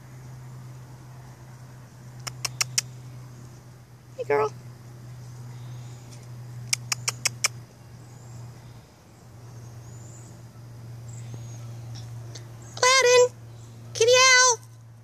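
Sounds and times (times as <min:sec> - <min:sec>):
steady low hum: 0:00.0 - 0:15.0
sharp clicks: 0:02.2 - 0:02.9, 0:06.1 - 0:07.6.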